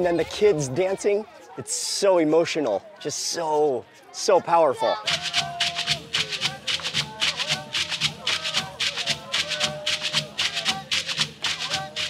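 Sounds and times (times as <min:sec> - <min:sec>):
voices chanting held notes: 0:03.0 - 0:12.0
rattling gourd percussion: 0:05.0 - 0:12.0.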